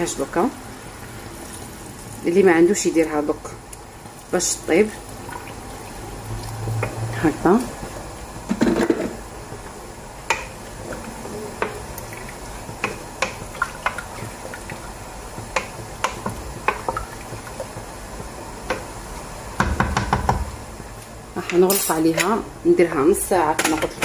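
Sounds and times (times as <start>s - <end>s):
spoon knocking against pot: 19.6s - 20.5s.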